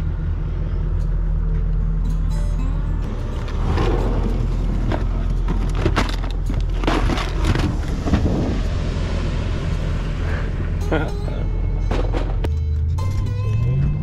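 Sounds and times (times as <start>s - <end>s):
low steady hum: 0.0s - 13.2s
straps and rope clattering: 4.7s - 8.2s.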